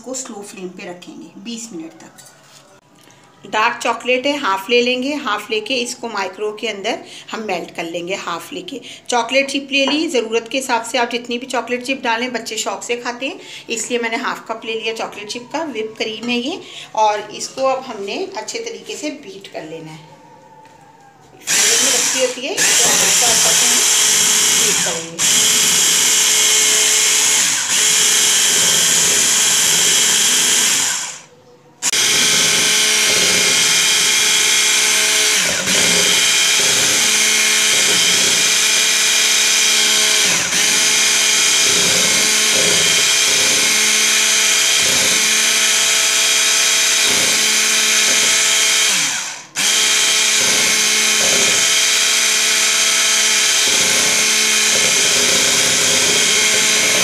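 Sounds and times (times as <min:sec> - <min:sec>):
electric hand mixer whipping cream: 0:21.5 - 0:31.2, 0:31.8 - 0:57.0.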